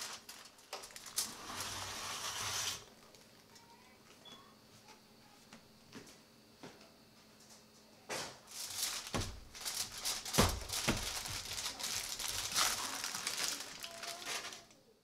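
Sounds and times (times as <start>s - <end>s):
foil and paper crinkling: 0.0s - 3.9s, 8.4s - 14.8s.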